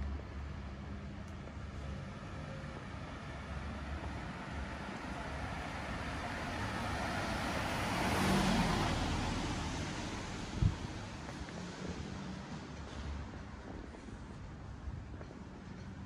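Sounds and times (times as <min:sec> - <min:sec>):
low hum of traffic: 0:00.0 - 0:16.0
car driving past: 0:04.5 - 0:13.3.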